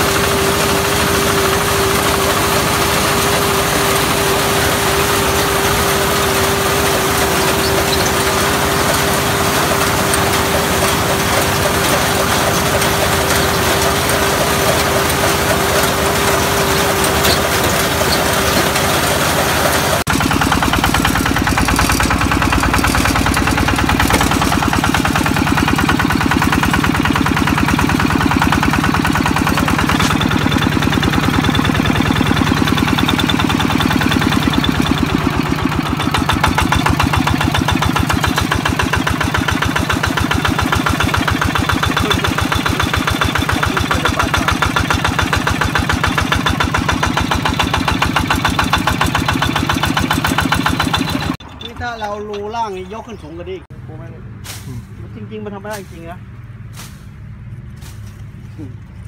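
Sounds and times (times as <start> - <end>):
harvester engine running: 0.0 - 59.0.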